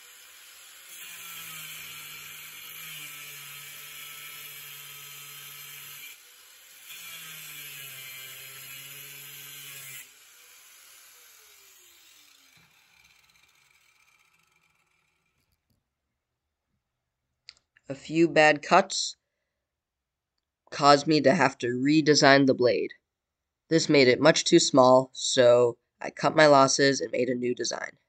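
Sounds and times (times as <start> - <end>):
angle grinder cutting steel: 0.0 - 15.5
grinder winding down: 0.0 - 15.5.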